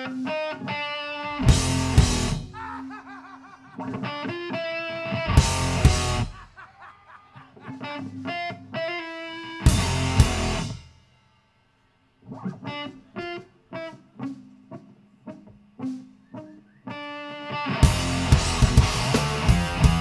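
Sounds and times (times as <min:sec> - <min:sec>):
electric guitar staccato notes: 0:00.0 - 0:06.6, 0:07.4 - 0:10.9, 0:12.2 - 0:20.0
band hit with drums and cymbal: 0:01.4 - 0:02.5, 0:09.7 - 0:10.9, 0:17.8 - 0:20.0.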